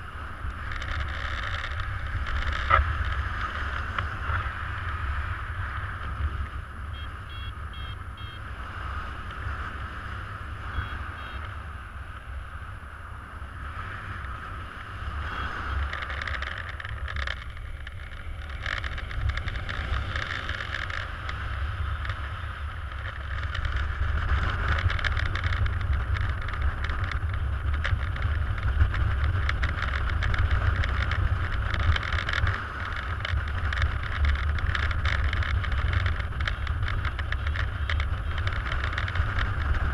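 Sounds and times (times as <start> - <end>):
faint short beeps: 6.9 - 8.5, 10.7 - 11.5.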